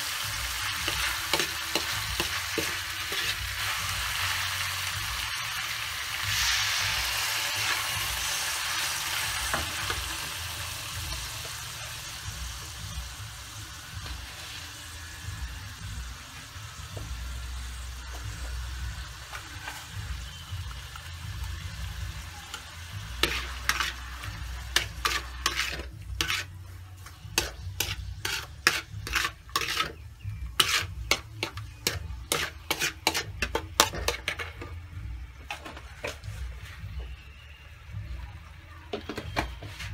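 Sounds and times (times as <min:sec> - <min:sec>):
garlic sizzling in wok: 0:00.0 - 0:36.9
metal spatula scraping wok: 0:00.1 - 0:12.2, 0:19.0 - 0:21.1, 0:22.2 - 0:36.8.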